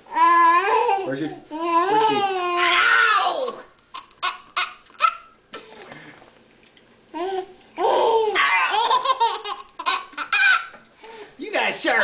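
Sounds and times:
baby laughing: 3.9 - 5.4, 7.2 - 10.8.

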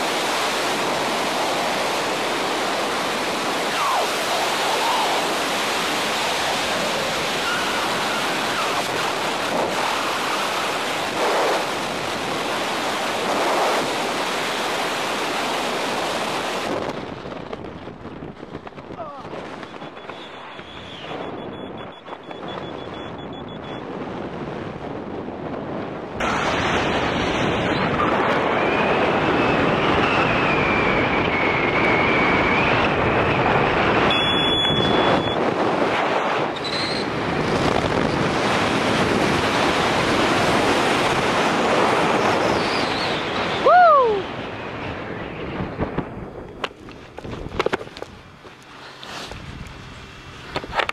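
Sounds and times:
short falling whoop: 3.7 - 5.3, 43.6 - 44.3.

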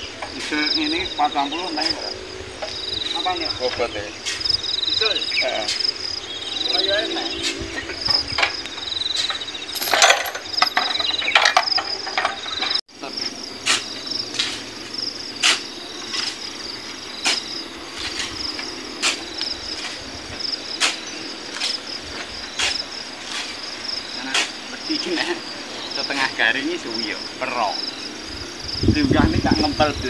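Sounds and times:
insects chirping: 0.0 - 30.0
shovel scooping and throwing sand: 13.6 - 14.7, 15.4 - 16.4, 17.2 - 20.0.

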